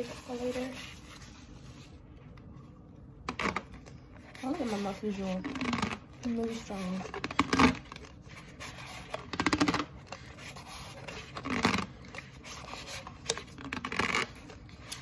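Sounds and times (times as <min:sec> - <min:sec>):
cardboard box rubbing and scratching: 0:00.0 - 0:01.9, 0:04.3 - 0:13.2.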